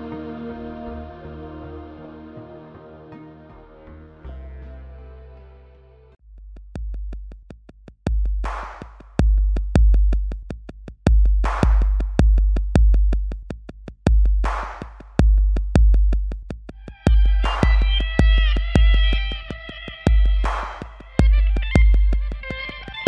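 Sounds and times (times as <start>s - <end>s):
electronic music: 0.0s - 6.2s, 16.8s - 23.0s
fast hi-hat ticks: 6.4s - 23.0s
heavy kick drum: 6.5s - 23.0s
snare drum hits: 8.5s - 9.0s, 11.5s - 12.2s, 14.5s - 15.0s, 17.4s - 19.0s, 20.4s - 21.2s.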